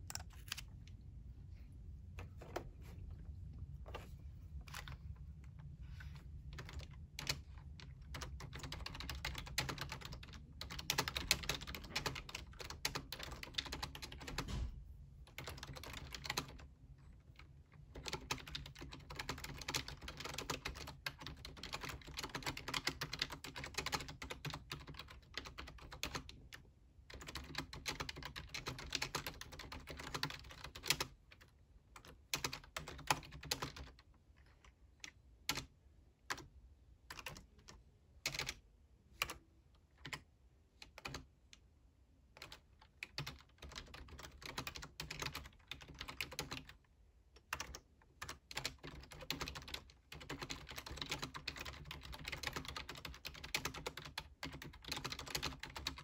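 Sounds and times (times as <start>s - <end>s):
computer keyboard typing: 0.0s - 0.7s, 6.5s - 14.7s, 15.3s - 16.6s, 17.9s - 35.7s, 37.1s - 38.6s, 40.0s - 40.2s, 40.8s - 41.3s, 42.4s - 46.8s, 47.4s - 56.0s.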